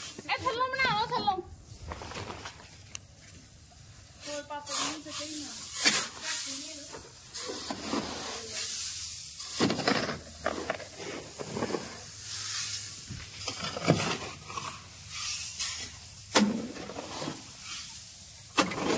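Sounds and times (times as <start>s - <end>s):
hoe dragged through grain: 4.2s - 16.0s, 16.6s - 18.9s.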